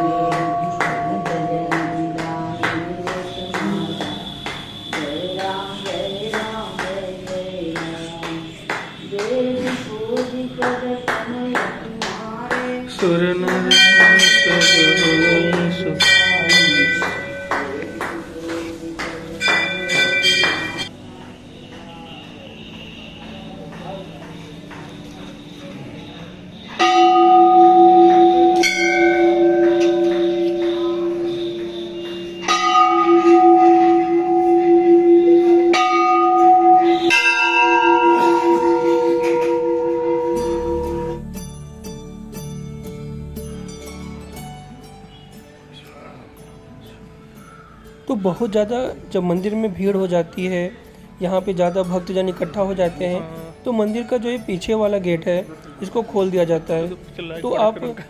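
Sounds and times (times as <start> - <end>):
brass temple bell ringing: 0.0 - 5.8, 13.6 - 18.2, 19.4 - 20.9, 26.8 - 41.7.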